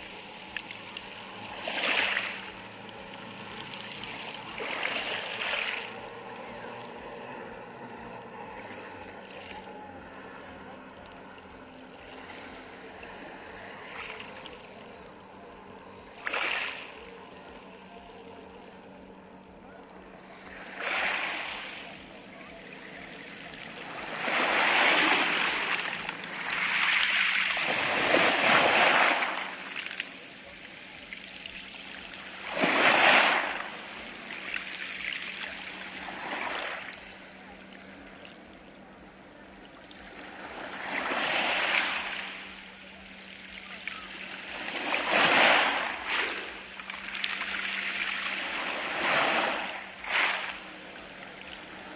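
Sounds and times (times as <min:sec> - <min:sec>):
waves washing over pebbles: 0:00.0 - 0:17.5, 0:20.0 - 0:51.9.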